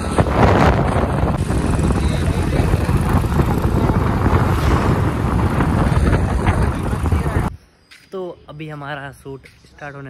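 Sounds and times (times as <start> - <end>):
motorcycle engine running: 0.0 - 7.5
wind rushing on microphone: 0.0 - 7.6.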